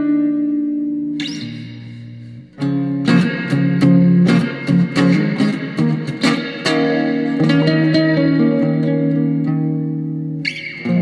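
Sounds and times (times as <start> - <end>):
cigar box guitar notes: 0.0 - 11.0.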